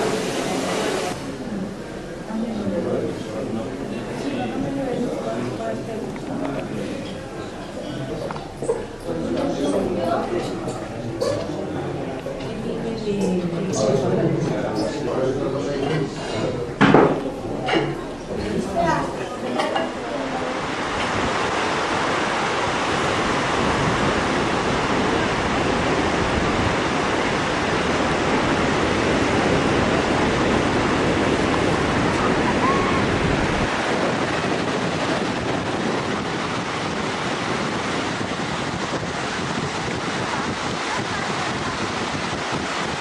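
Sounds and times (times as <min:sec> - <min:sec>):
ocean surf breaking on beach: 0:00.0 - 0:06.3, 0:17.4 - 0:43.0
wind rumbling on microphone: 0:20.0 - 0:43.0.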